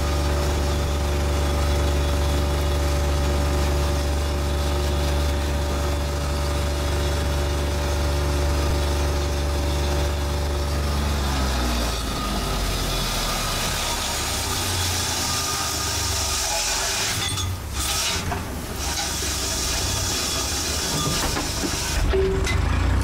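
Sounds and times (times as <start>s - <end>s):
boat engine drone: 0.0s - 16.3s.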